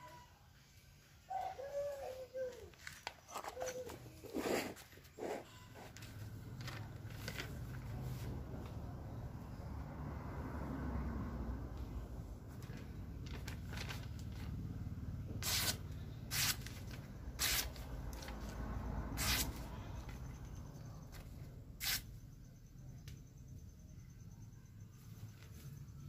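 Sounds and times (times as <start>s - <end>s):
blade slicing paper: 15.4s - 18.6s, 19.2s - 19.7s.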